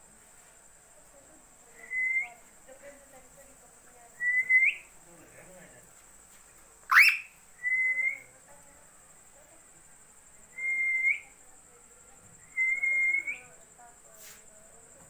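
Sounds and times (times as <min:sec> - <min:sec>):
parakeet whistling and chirping: 0:06.9 - 0:08.2.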